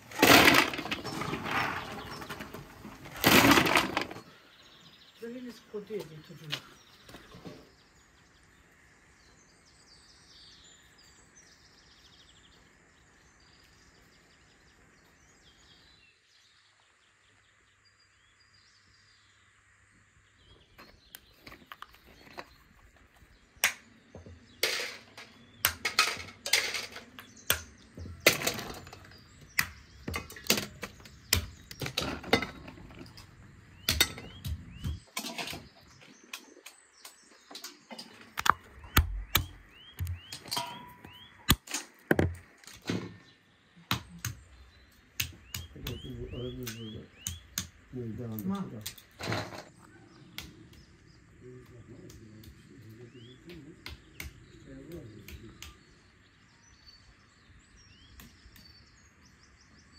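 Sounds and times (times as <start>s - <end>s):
faint birds chirping: 0.0s - 59.9s
walnuts knocking together: 38.3s - 42.9s.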